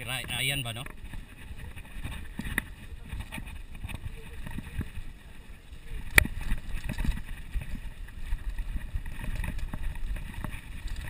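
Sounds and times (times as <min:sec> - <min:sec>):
bike tyres rumbling on dirt: 0:00.0 - 0:11.0
wind on microphone: 0:00.0 - 0:11.0.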